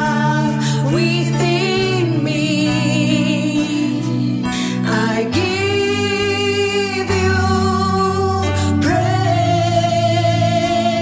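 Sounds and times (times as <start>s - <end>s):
woman singing gospel song: 0.0s - 11.0s.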